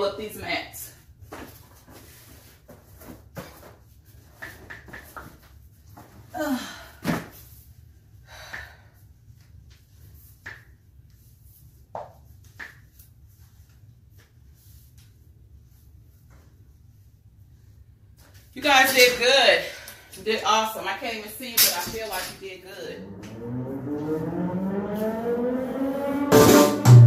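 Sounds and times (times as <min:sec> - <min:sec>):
low hum: 0:22.0 - 0:27.0.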